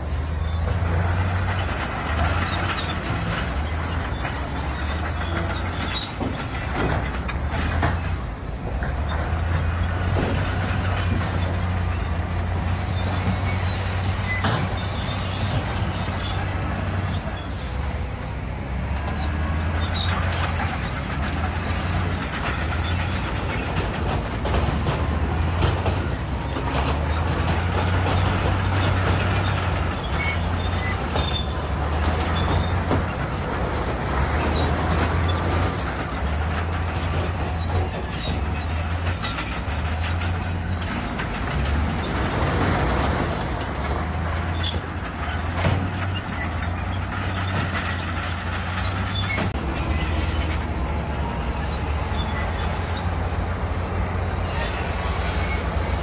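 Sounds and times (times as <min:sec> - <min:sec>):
diesel engine drone: 0:00.0 - 0:56.0.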